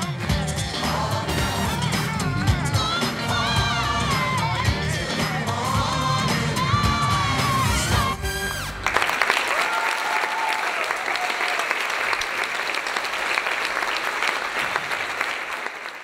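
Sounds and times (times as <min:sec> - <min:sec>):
music: 0:00.0 - 0:09.0
audience applauding: 0:08.6 - 0:16.0.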